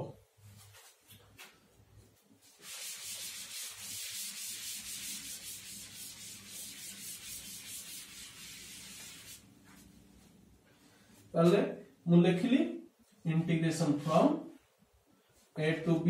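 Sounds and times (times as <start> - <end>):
duster rubbing chalkboard: 2.5 - 9.9.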